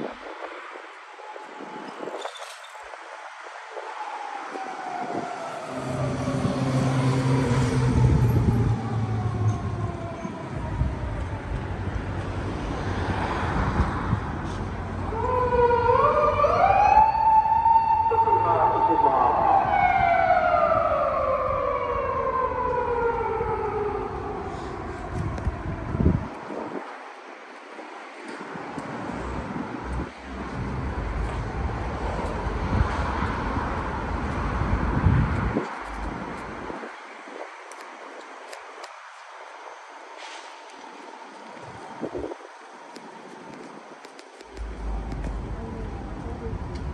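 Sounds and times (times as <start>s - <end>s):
wind buffeting microphone: 0.0s - 39.4s, 40.7s - 46.9s
city traffic: 0.0s - 46.9s
police siren wailing: 3.6s - 12.1s, 15.0s - 26.7s.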